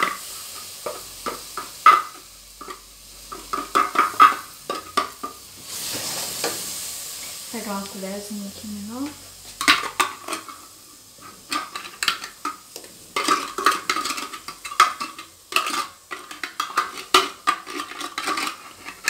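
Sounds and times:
spoon scraping in metal tin: 9.6s - 12.6s, 13.2s - 19.0s.

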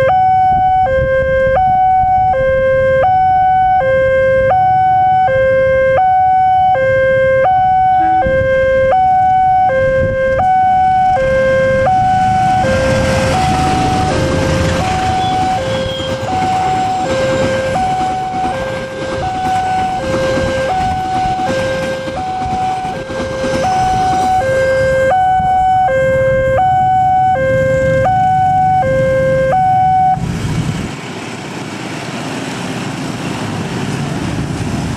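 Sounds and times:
level-crossing two-tone alarm: 0.0s - 30.2s
motorcycle engines running: 11.3s - 25.0s
train wheels rumbling on rails: 11.7s - 25.8s, 30.2s - 34.9s.

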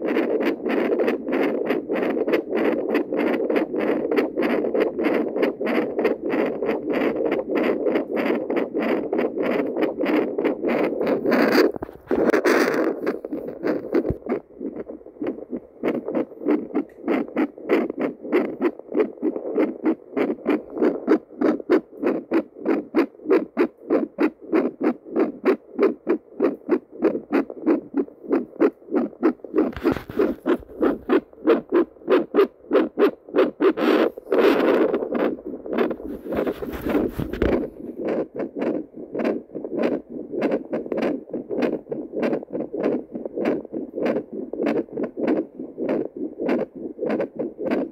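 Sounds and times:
doppler heartbeat whooshing pulses: 0.0s - 47.9s
scraping noise: 11.1s - 14.3s, 29.6s - 32.3s, 33.5s - 38.2s.

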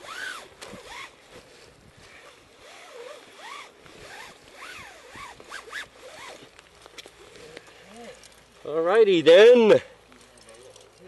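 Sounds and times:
wet rope squeaking: 0.0s - 1.2s, 2.1s - 8.3s
nylon rain gear rustling: 0.0s - 11.0s.

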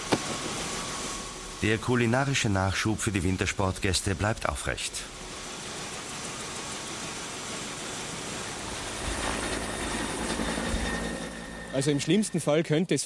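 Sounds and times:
engine running: 8.5s - 12.5s.

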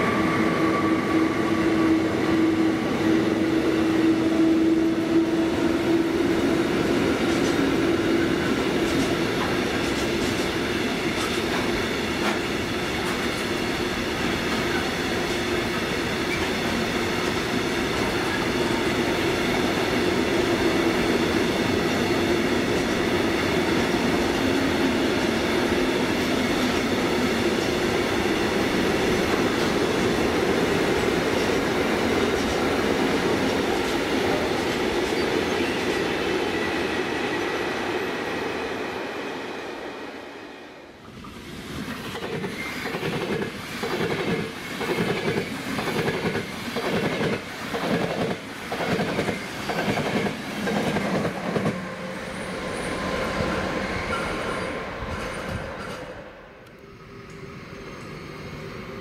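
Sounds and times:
train rumbling past: 0.0s - 59.0s
train wheels clacking over rail joints: 41.8s - 51.8s.

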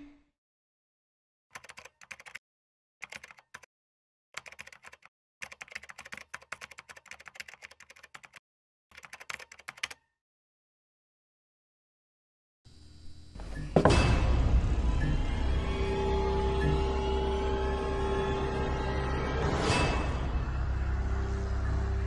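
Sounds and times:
keyboard typing clicks: 1.6s - 2.4s, 3.0s - 3.7s, 4.4s - 10.0s.

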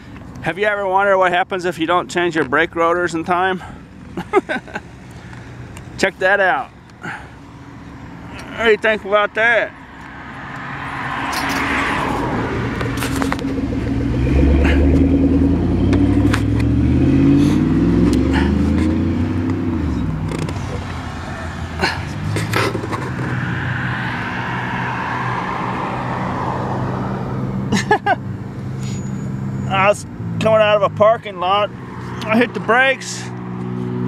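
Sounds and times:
low engine hum: 9.8s - 27.7s
vehicle engine passing by: 10.0s - 27.7s.

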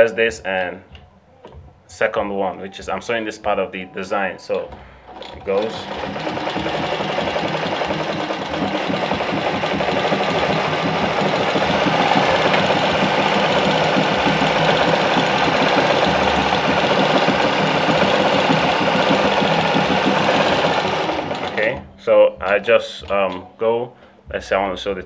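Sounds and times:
sewing machine stitching: 5.1s - 21.9s.

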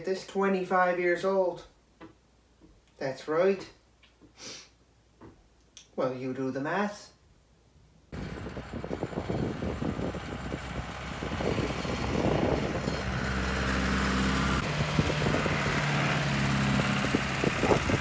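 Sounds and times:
tractor engine running: 8.2s - 18.0s.

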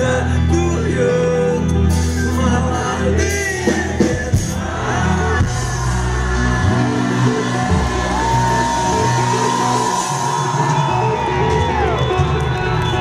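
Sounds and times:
man singing: 0.0s - 7.4s
live rock band playing: 0.0s - 13.0s.

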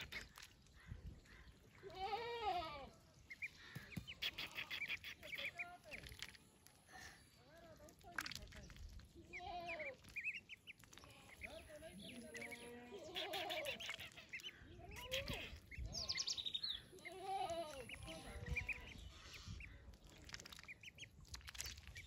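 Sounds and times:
ducklings peeping: 0.0s - 0.6s, 3.3s - 6.4s, 9.6s - 22.0s.

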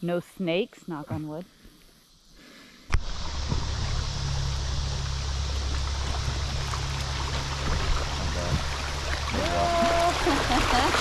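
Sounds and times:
river water rushing: 3.0s - 11.0s.

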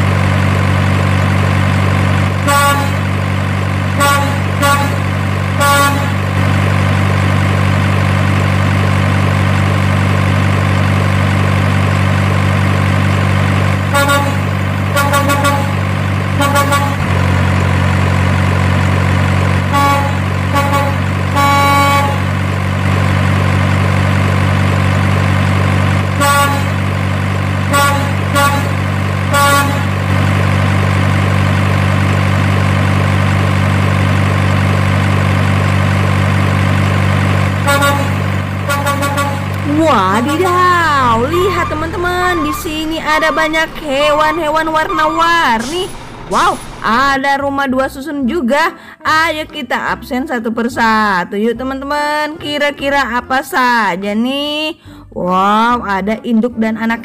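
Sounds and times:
truck engine running: 0.0s - 48.5s
short horn toots: 2.4s - 3.0s, 4.0s - 5.0s, 5.6s - 6.2s, 13.9s - 15.8s, 16.4s - 17.1s, 37.6s - 39.6s.

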